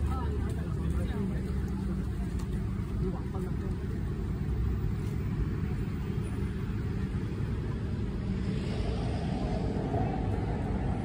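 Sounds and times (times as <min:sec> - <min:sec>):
city street traffic rumble: 0:00.0 - 0:11.0
vehicle passing: 0:06.1 - 0:11.0.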